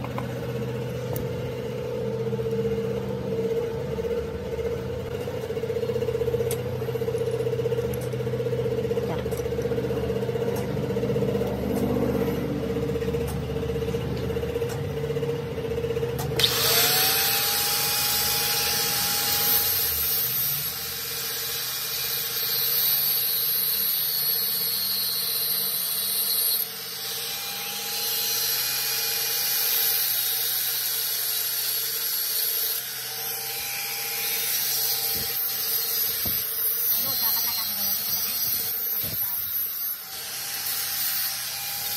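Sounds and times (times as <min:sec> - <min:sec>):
angle grinder cutting steel rod: 0:16.2 - 0:41.9.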